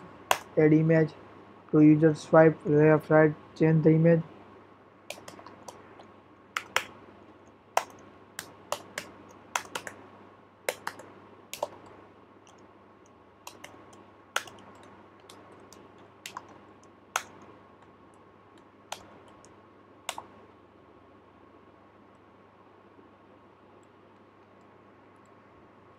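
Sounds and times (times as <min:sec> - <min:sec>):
computer keyboard typing: 0:05.1 - 0:06.9, 0:07.8 - 0:10.0, 0:10.7 - 0:12.6, 0:13.5 - 0:17.5.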